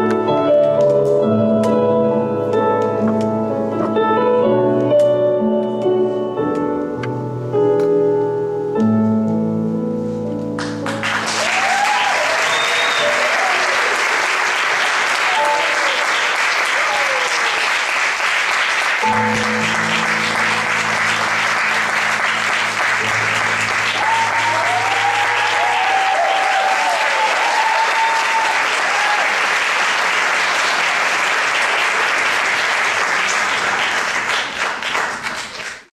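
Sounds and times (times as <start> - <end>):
audience applauding: 10.6 - 35.9
crowd cheering calls: 11.0 - 31.6.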